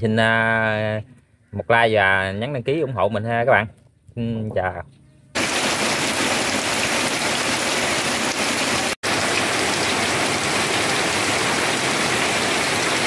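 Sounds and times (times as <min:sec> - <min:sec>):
heavy rain splashing into puddles: 0:05.4 - 0:13.0.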